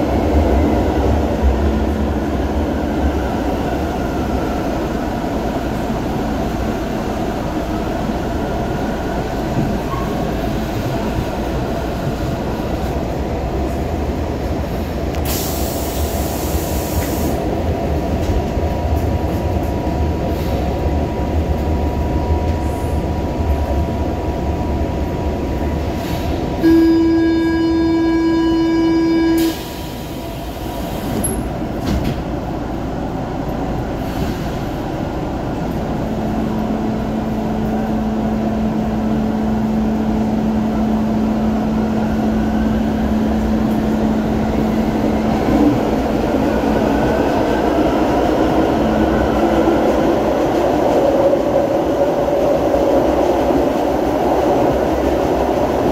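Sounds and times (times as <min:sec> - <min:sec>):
train running through tunnel: 0:00.0 - 0:55.9
train horn: 0:26.6 - 0:29.7.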